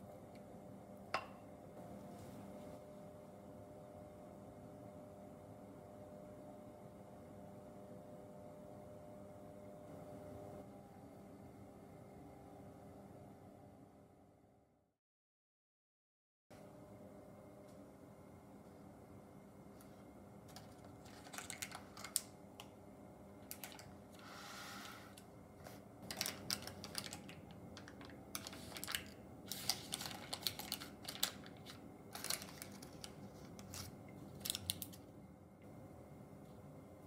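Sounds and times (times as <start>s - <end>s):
stiff paper crinkling: 20.5s - 22.3s, 25.6s - 35.0s.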